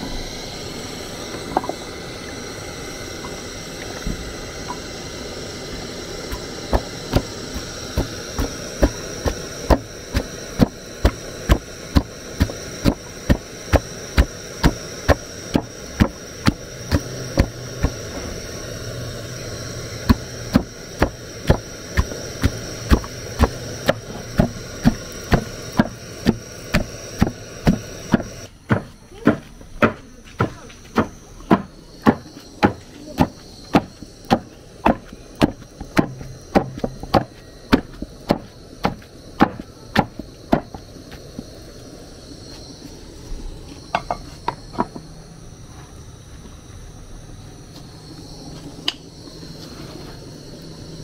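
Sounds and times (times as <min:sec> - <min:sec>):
background hiss: 0:00.0 - 0:51.0
wooden pestle pounding in mortar: 0:25.3 - 0:40.8.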